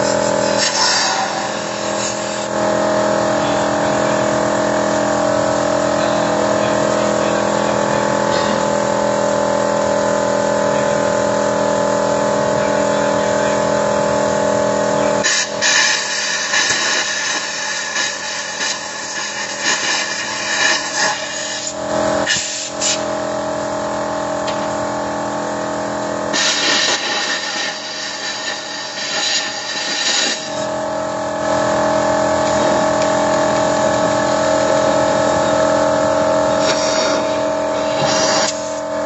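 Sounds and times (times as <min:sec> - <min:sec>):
car engine running: 0:30.6 - 0:39.0.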